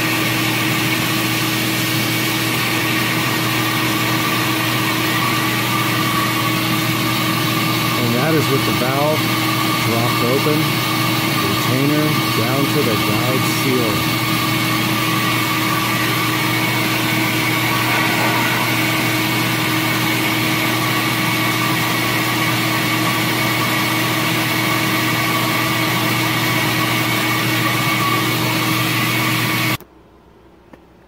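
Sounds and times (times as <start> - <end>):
flow bench air rushing: 1.4 - 22.4.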